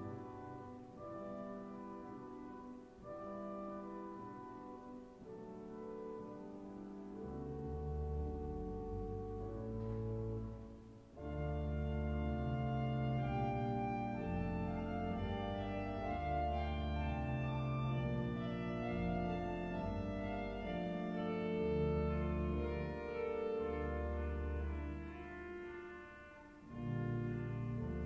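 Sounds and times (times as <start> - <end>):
pipe organ chords: 0.0 - 28.0.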